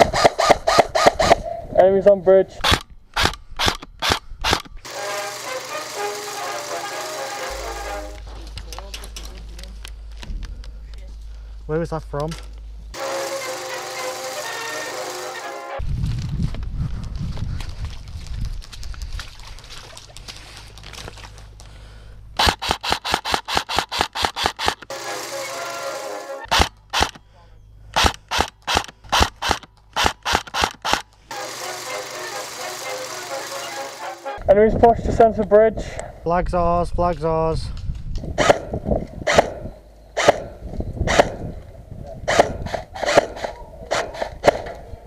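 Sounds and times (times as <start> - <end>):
airsoft gun shots: 0.0 - 1.4, 28.0 - 33.0, 38.4 - 41.4, 42.3 - 44.8
airsoft rifle rapid shots: 0.0 - 1.4, 2.6 - 8.2, 13.0 - 15.6, 22.4 - 27.2, 28.0 - 34.4, 38.4 - 38.7, 39.3 - 39.6, 40.2 - 40.5, 41.1 - 41.4, 42.3 - 44.8.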